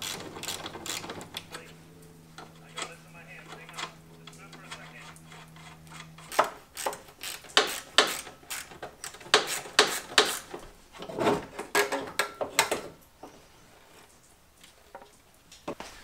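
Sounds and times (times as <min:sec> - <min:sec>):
steady low hum: 0:00.0 - 0:11.6.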